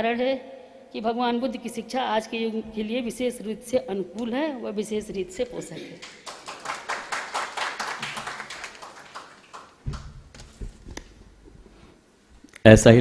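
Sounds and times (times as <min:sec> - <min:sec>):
audience clapping: 0:05.4 - 0:11.1
microphone handling thuds: 0:09.8 - 0:11.8.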